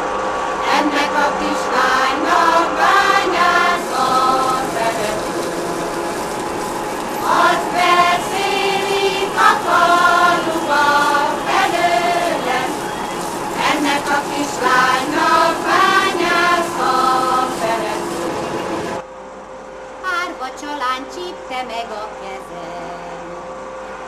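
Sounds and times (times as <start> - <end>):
choir singing folk song: 0.6 - 19.0.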